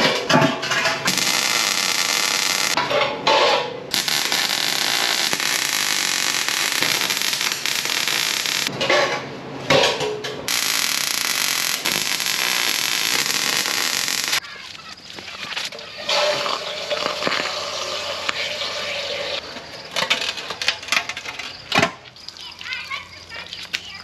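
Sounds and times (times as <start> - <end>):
welding arc crackling and hissing: 1.1 - 2.8, 3.9 - 8.7, 10.5 - 14.4, 16.4 - 19.0.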